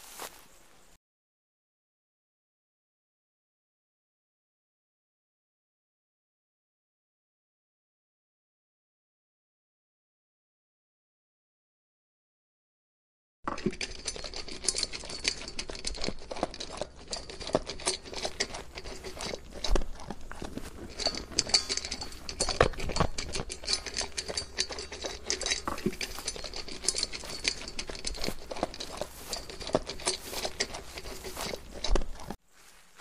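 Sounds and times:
camels chewing grass: 13.5 - 33.0.

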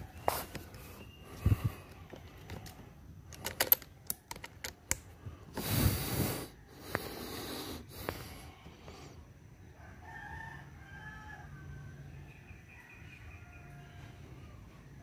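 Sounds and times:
clicks and knocks of handling: 1.8 - 5.2.

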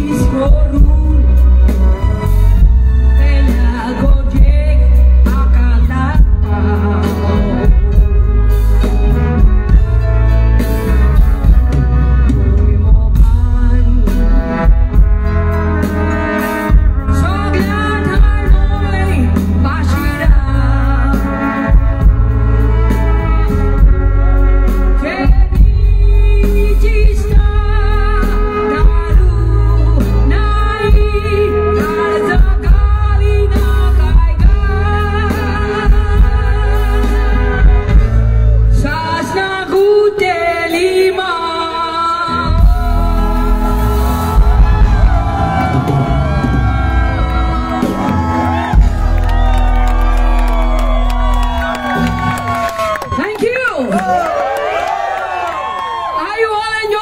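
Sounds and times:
woman singing into microphone: 0.0 - 8.5, 12.2 - 15.0, 17.1 - 21.9, 24.9 - 38.0, 38.7 - 48.4
drum kit beat: 0.0 - 38.3, 42.5 - 53.0.

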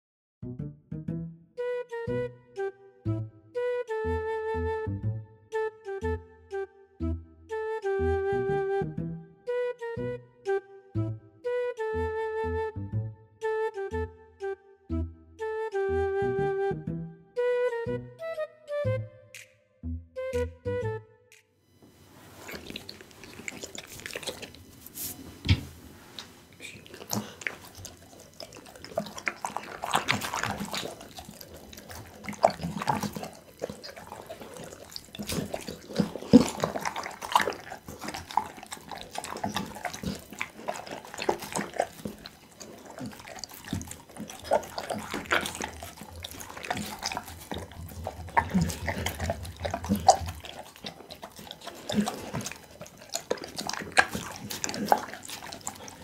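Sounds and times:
dog chewing wetly: 22.3 - 56.0.

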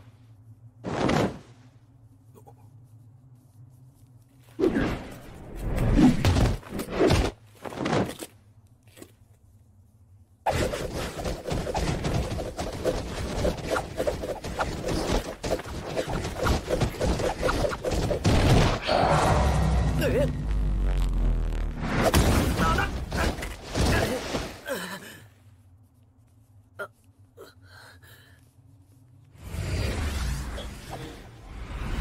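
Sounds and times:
fast run of blows: 10.5 - 18.5.

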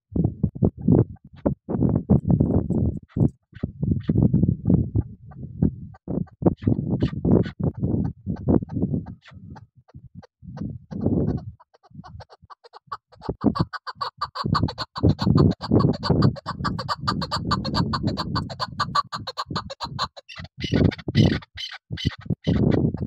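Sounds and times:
partridge clucking calls: 6.6 - 10.0, 10.6 - 23.0.

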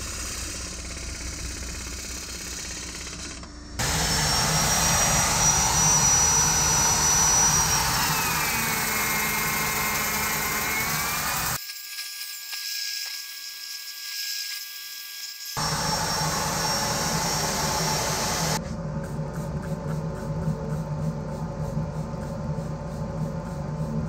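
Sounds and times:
wood lathe running: 0.0 - 11.6, 15.6 - 18.6.

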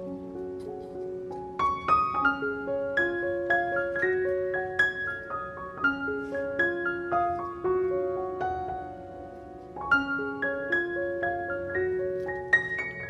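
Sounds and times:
gentle piano melody: 0.0 - 13.0.

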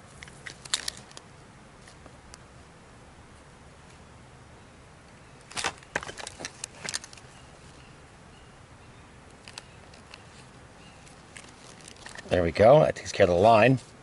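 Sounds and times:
fishing line clicks and rustles: 0.0 - 2.4, 5.4 - 7.4, 9.3 - 12.7.

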